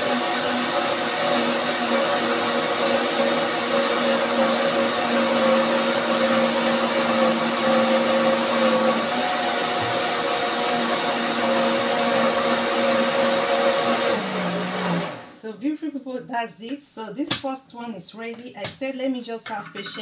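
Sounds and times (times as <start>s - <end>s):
blender motor running: 0.0s - 15.4s.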